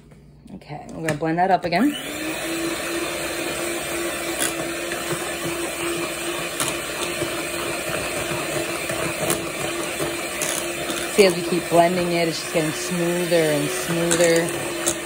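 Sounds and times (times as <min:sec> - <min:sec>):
electric hand mixer running: 0:01.6 - 0:15.0.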